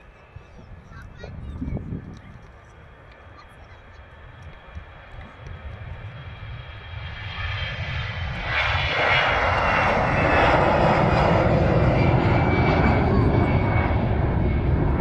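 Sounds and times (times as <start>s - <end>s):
jet engines at takeoff: 0.0s - 15.0s.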